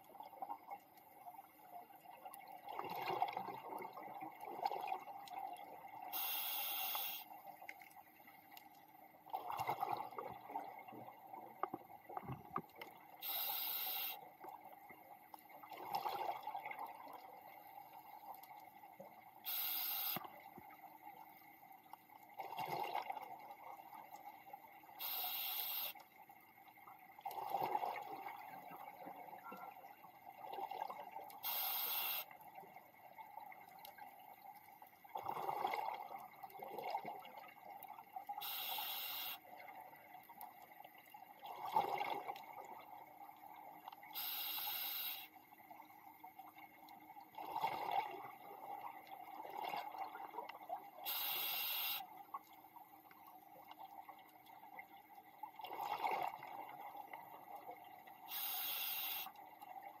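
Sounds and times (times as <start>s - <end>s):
regulator inhale hiss: 6.2s - 7.3s, 13.2s - 14.2s, 19.4s - 20.2s, 25.0s - 26.0s, 31.4s - 32.3s, 38.4s - 39.4s, 44.2s - 45.3s, 51.1s - 52.0s, 58.3s - 59.3s.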